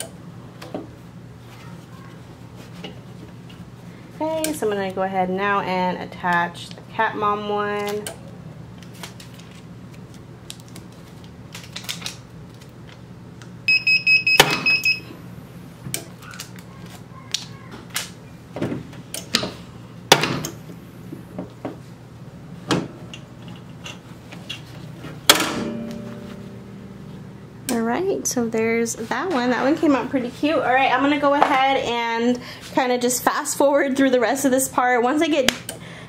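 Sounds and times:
electronic beeps: 0:13.7 - 0:15.1
steady low hum: 0:18.0 - 0:36.0.

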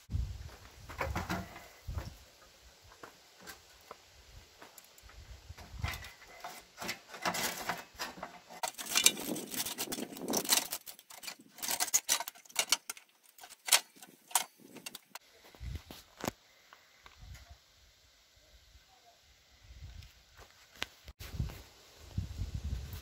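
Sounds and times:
metal parts clinking and rattling: 0:05.8 - 0:15.2.

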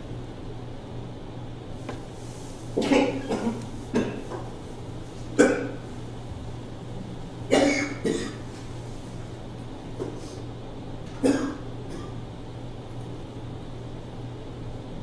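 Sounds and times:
person coughing: 0:02.8 - 0:04.2, 0:05.4 - 0:05.8, 0:07.5 - 0:08.4, 0:11.2 - 0:12.2
low hum: 0:05.8 - 0:07.7.

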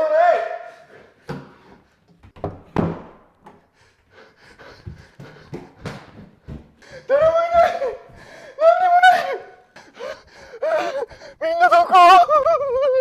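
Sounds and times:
person panting: 0:03.6 - 0:11.5
barefoot footsteps on wood: 0:04.4 - 0:08.5.

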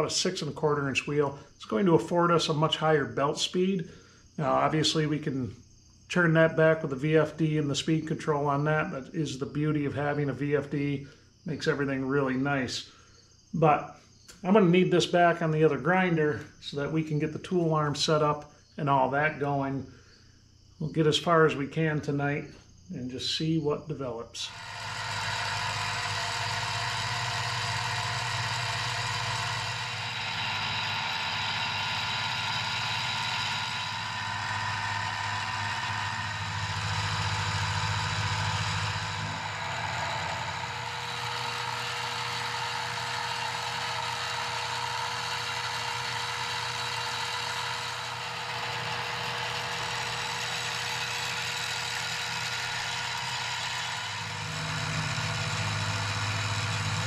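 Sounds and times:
end mill cutting steel: 0:24.4 - 0:57.0
milling machine motor whine: 0:24.4 - 0:57.0
low hum: 0:24.5 - 0:57.0.

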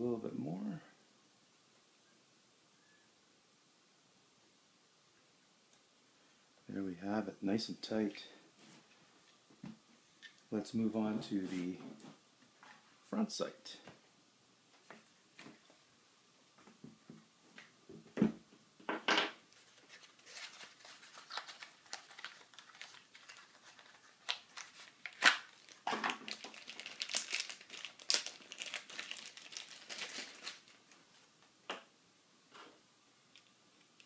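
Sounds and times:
plastic bag crinkling: 0:19.6 - 0:31.2.

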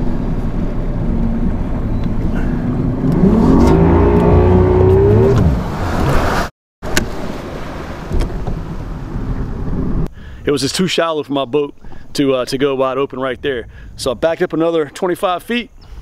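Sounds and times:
outboard engine under hard throttle: 0:00.0 - 0:05.9
wind and water rush: 0:03.0 - 0:10.1.

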